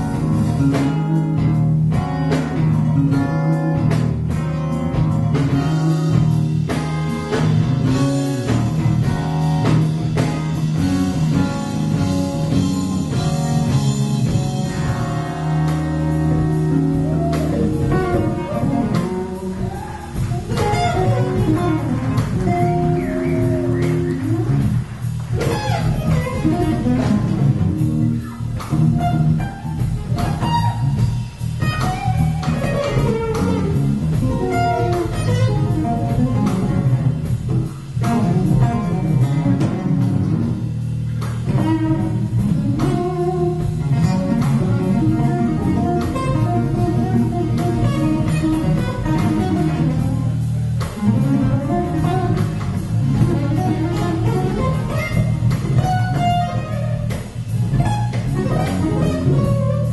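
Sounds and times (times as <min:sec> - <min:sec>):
electric bass line: 0:00.0 - 0:59.9
acoustic guitar playing: 0:10.3 - 0:37.0, 0:41.6 - 0:59.9.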